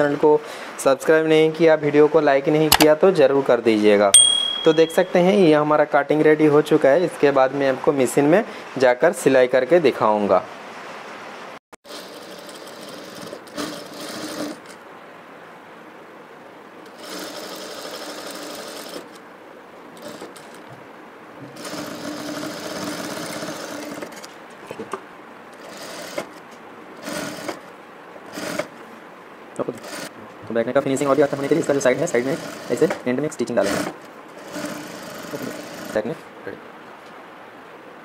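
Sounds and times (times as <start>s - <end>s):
sewing machine stitching: 11.9s - 14.8s, 16.9s - 19.2s, 20.0s - 20.6s, 21.5s - 24.3s, 25.6s - 26.4s, 27.0s - 27.7s, 28.3s - 28.7s, 29.6s - 30.1s, 31.0s - 36.1s.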